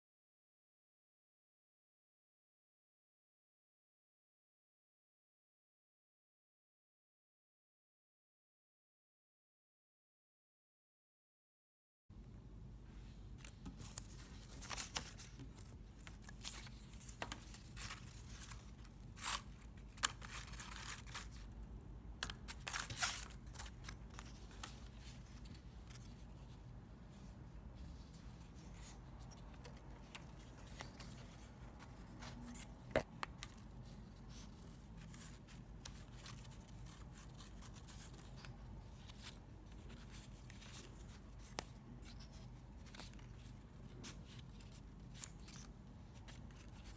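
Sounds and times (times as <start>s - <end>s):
paper strips rustling: 13.4s - 21.6s, 22.2s - 46.9s.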